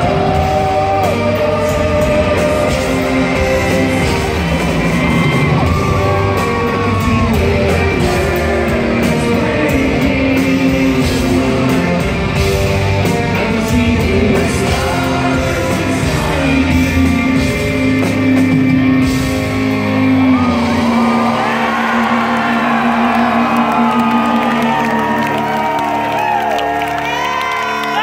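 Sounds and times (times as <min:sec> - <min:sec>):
person singing: 0:00.0 - 0:19.0
rock band playing live: 0:00.0 - 0:28.0.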